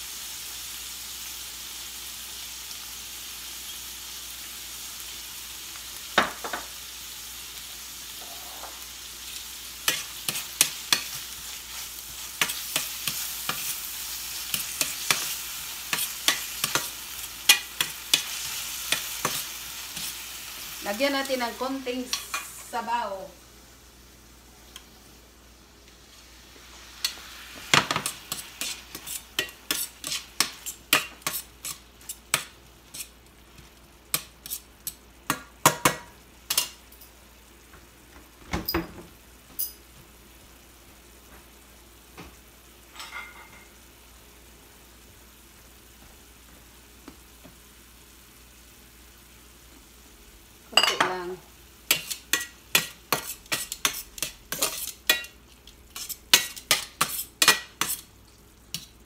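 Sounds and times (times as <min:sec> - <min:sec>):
utensil scraping frying pan: 0:08.2 - 0:09.1, 0:09.7 - 0:22.7, 0:27.0 - 0:33.2, 0:51.9 - 0:58.1.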